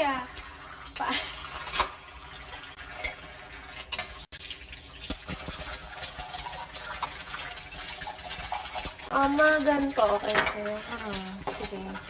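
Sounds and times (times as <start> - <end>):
dishes and utensils clinking: 0.9 - 4.3, 7.9 - 12.0.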